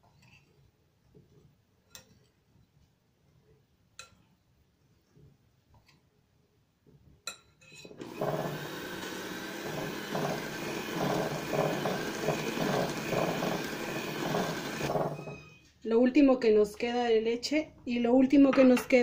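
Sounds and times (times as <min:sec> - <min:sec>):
electric mixer beating batter: 0:08.0 - 0:15.3.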